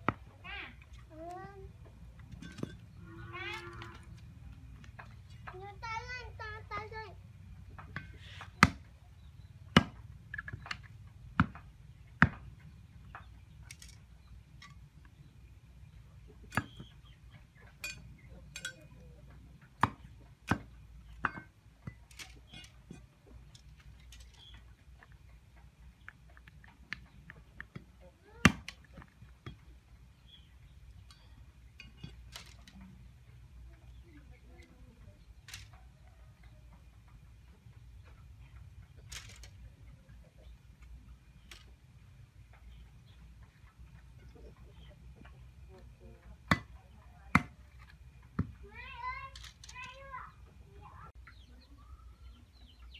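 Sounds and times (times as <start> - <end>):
stems ticking and tapping: 0.0 - 52.9
machete chopping stalks: 8.0 - 8.9, 9.7 - 10.0.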